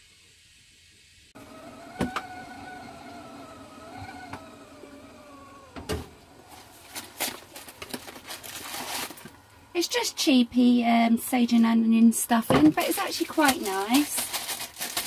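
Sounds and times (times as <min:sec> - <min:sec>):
stove top hum: 0:00.1 - 0:15.0
cardboard box rustling: 0:06.5 - 0:09.4, 0:12.8 - 0:15.0.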